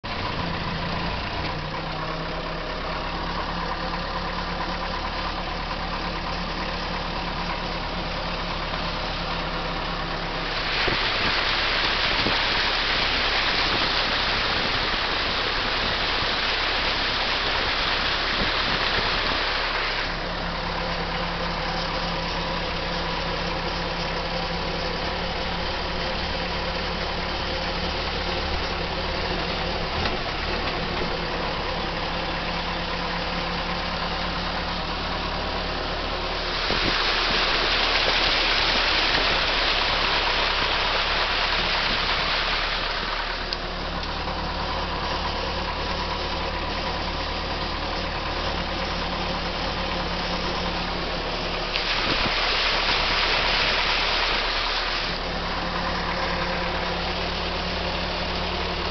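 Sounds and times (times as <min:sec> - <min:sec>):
car engine idling: 0:00.0 - 0:58.9
loud rushing hiss: 0:36.3 - 0:43.4.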